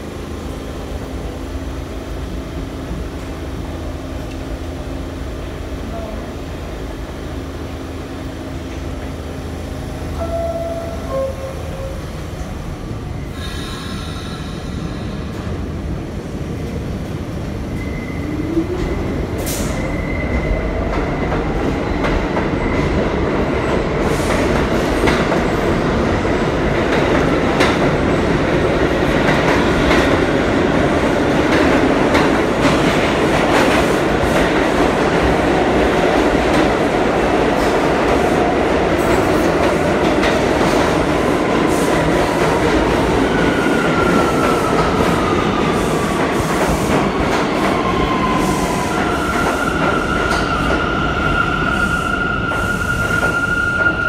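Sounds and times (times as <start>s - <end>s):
short tone: 10.2s - 12.1s.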